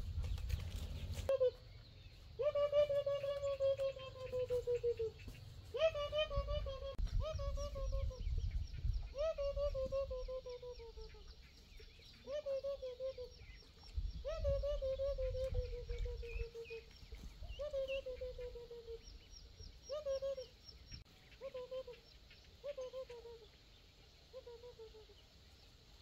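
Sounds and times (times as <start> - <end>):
poultry calling: 0.4 - 23.6
faint high peeping: 6.7 - 25.8.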